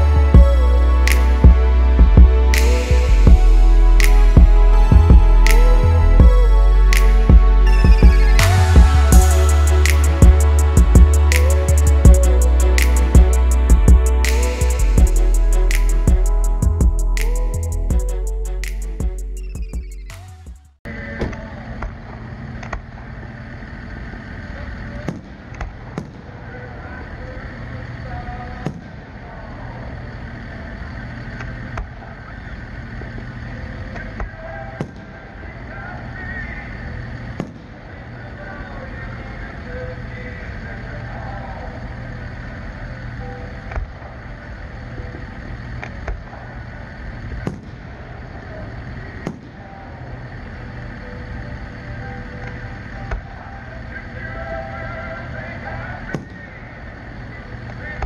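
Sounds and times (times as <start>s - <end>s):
steady background noise: 20.9s - 58.0s.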